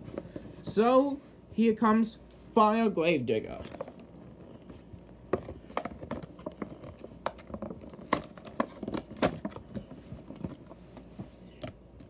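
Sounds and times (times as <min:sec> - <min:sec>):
plastic packaging crinkling: 0:05.6 - 0:10.8.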